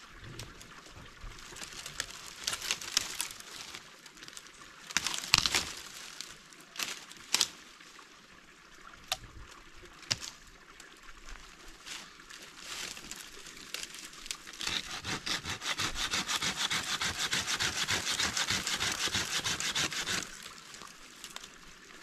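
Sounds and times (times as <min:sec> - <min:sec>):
leaves crackling underfoot: 0:00.4 - 0:08.0, 0:09.5 - 0:22.0
dry branches snapping: 0:01.6 - 0:03.7, 0:04.9 - 0:07.6, 0:10.1 - 0:10.4.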